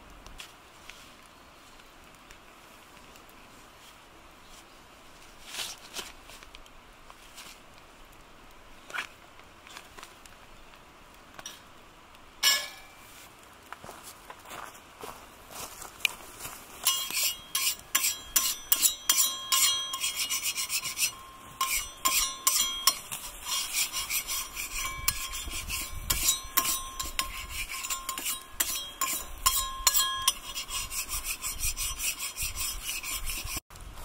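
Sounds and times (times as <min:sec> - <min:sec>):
metal spatula scraping griddle: 0:16.8 - 0:33.6.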